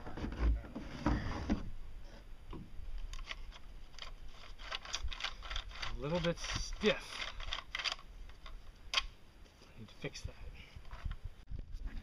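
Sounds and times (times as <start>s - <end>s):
roller bearing clicking and scraping: 3.1s - 9.0s.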